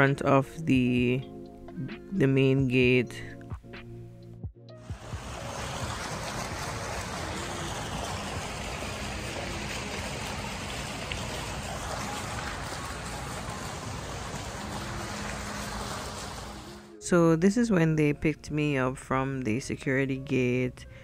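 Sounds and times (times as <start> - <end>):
fountain jets splashing into pool: 4.9 - 16.9.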